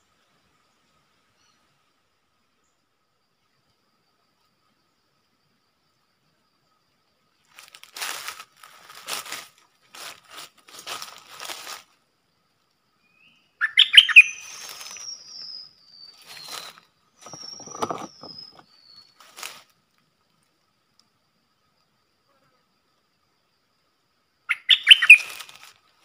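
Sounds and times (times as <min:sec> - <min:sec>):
bird singing rapid notes: 0:13.1 - 0:19.2, 0:24.5 - 0:25.4
bird whistling: 0:13.2 - 0:19.1, 0:24.5 - 0:25.4.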